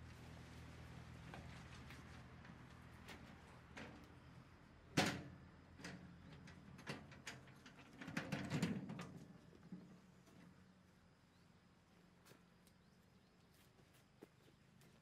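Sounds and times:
wheelbarrow clunk: 4.9 - 9.3.

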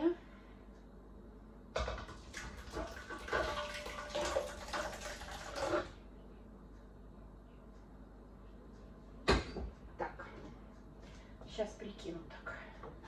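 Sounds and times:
thick puree pouring into metal basin: 2.2 - 6.0.

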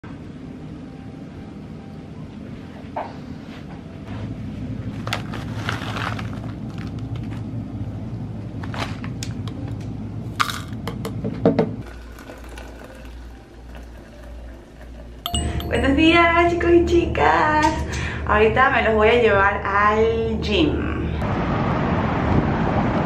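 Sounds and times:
low steady hum: 0.0 - 21.7
paper pouch crinkling: 4.9 - 7.5.

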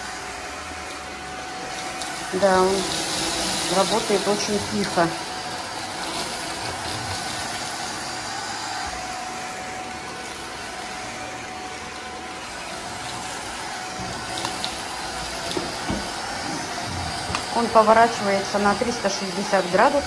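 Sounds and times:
stick vacuum running: 0.0 - 20.0.

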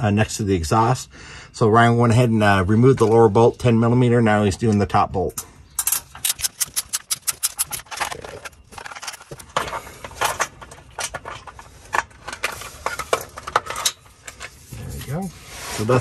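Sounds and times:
hand ratchet clicking: 5.8 - 7.8.

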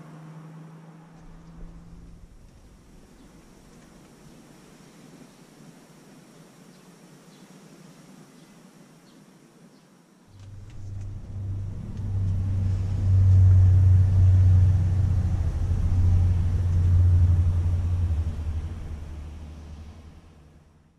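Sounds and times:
loud low rumble: 1.0 - 4.4, 10.3 - 20.9.

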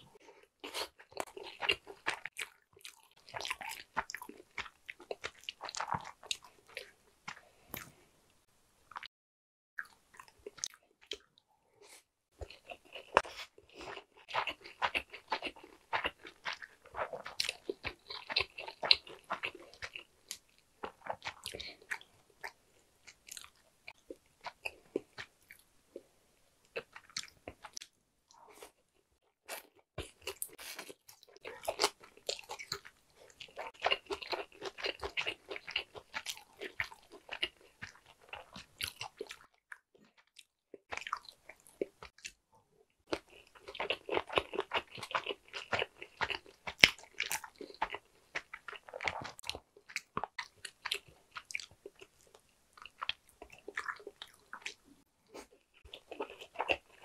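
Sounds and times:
chewing and biting food: 0.2 - 8.0, 9.8 - 11.4, 12.4 - 26.0, 26.7 - 42.4, 43.1 - 57.0.

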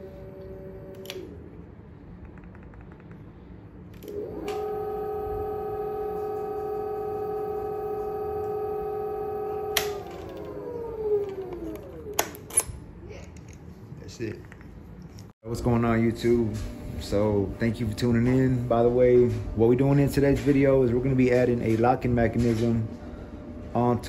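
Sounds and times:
motor cutoff click: 0.4 - 1.4, 4.0 - 12.5
electric motor whine: 4.0 - 12.2.

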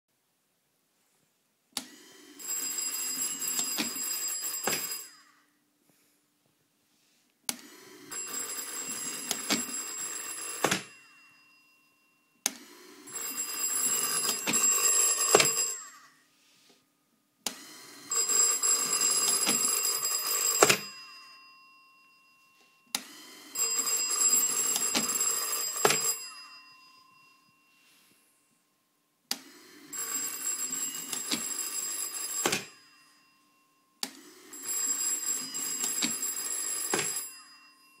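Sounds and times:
telephone bell ringing: 2.0 - 5.6, 7.7 - 16.7, 17.6 - 28.8, 29.4 - 38.0
telephone ringer click: 18.8 - 21.0, 31.0 - 32.8, 35.6 - 37.4.

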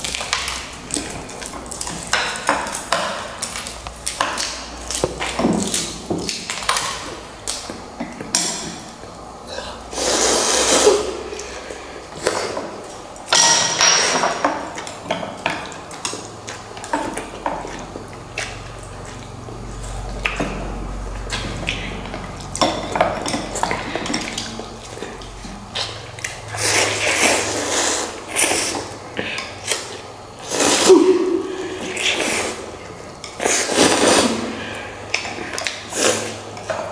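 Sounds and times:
eating noises: 0.0 - 36.9.

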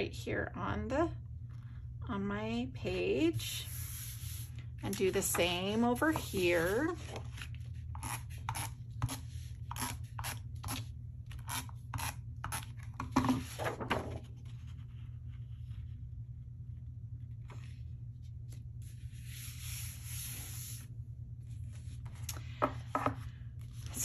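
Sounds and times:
paper rubbed by hand: 18.8 - 20.9.

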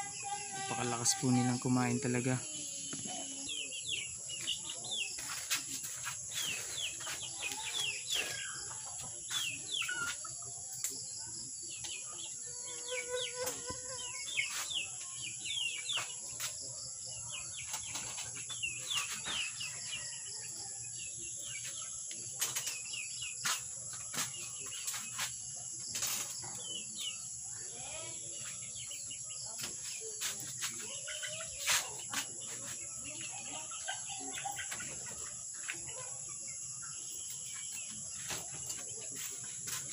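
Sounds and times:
high insect drone: 0.0 - 4.1, 9.6 - 16.6
small birds chirping: 0.0 - 39.9.

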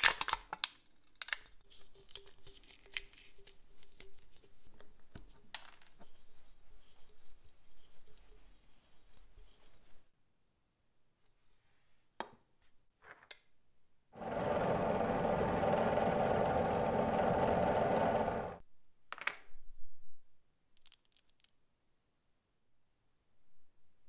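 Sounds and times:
power tool motor running: 14.2 - 18.6.

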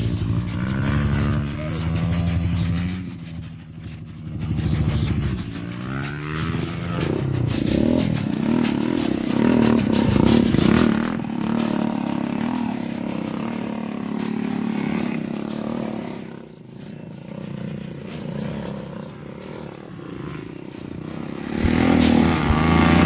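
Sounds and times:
dirt bike engine revving: 0.0 - 23.0.

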